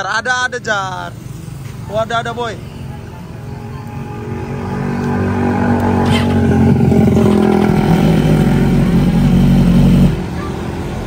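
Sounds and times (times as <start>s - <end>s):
motorcycle engine revving: 4.0s - 10.8s.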